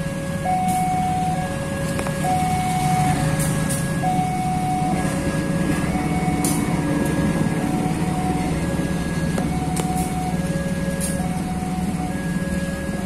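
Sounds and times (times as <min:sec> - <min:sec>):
diesel locomotive rumbling: 0:00.0 - 0:13.0
level crossing two-tone alarm: 0:00.0 - 0:13.0
train wheels clicking on rails: 0:03.3 - 0:04.0.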